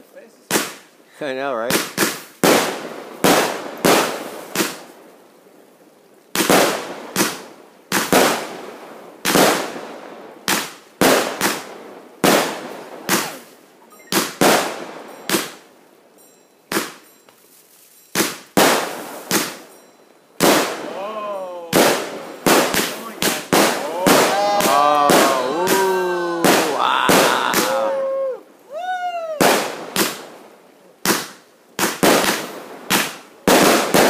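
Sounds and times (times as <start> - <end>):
firework bangs: 0.5 - 0.9, 1.7 - 4.9, 6.3 - 15.7, 16.7 - 17.1, 18.1 - 19.8, 20.4 - 21.0, 21.7 - 28.0, 29.4 - 34.0
firework hiss: 1.7 - 5.1, 6.3 - 15.6, 16.7 - 21.0, 21.6 - 34.0.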